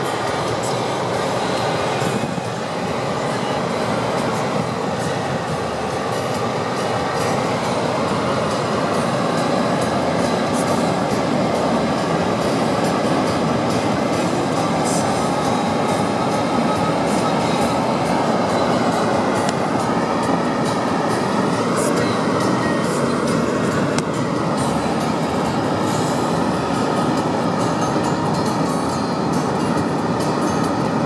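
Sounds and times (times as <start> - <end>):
car engine hum: 0.0 - 31.0
road and tyre noise: 0.0 - 31.0.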